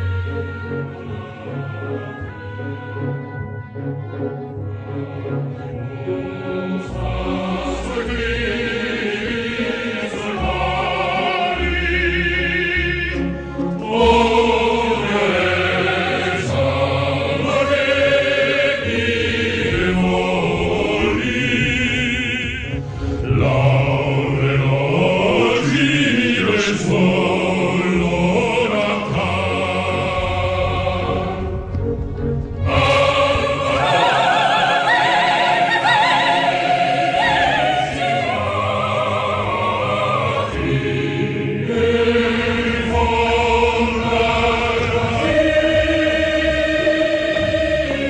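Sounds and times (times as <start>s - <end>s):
choir singing: 0.0s - 48.0s.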